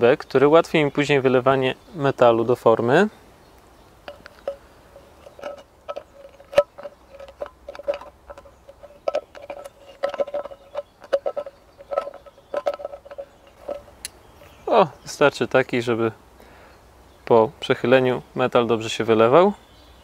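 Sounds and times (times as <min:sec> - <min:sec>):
metallic clicks and creaks: 0:04.0 - 0:14.6
metal can ringing: 0:04.1 - 0:13.8.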